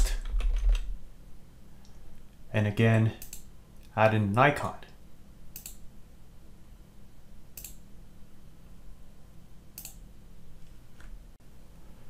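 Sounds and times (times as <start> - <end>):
steady low hum: 0.0 - 12.0
computer mouse clicks: 3.2 - 3.5, 5.5 - 5.8, 7.6 - 7.8, 9.8 - 10.0.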